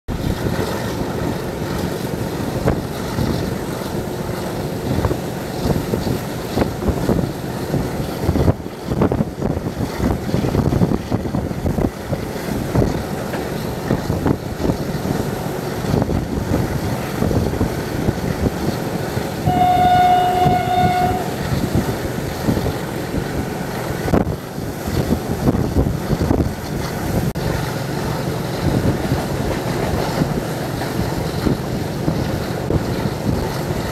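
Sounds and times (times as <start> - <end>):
train wheels clattering over rails: 0.1 - 33.9
train horn: 19.4 - 21.8.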